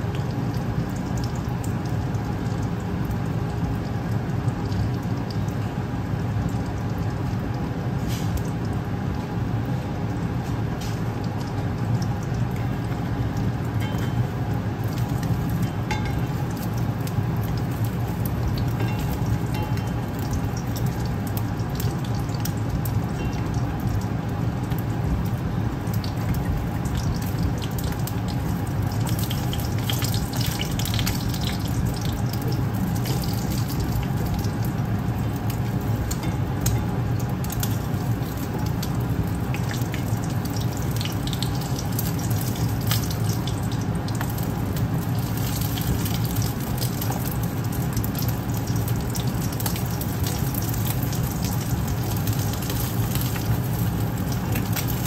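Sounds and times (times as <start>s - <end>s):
egg sizzling in oil: 0.0s - 55.0s
low hum: 11.2s - 50.7s.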